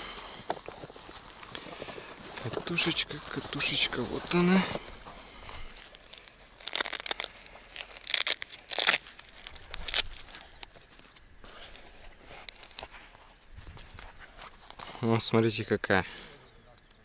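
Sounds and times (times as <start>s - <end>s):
packaging torn and crinkled: 5.7s - 11.3s, 12.3s - 12.9s.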